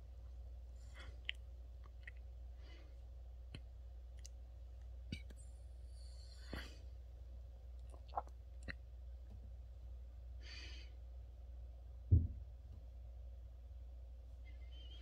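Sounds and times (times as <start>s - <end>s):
low steady hum: 0.0s - 15.0s
low thump: 12.1s - 12.5s.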